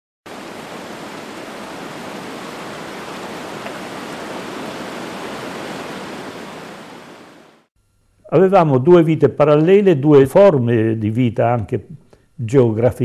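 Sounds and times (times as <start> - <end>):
falling water rushing: 0.3 - 7.6.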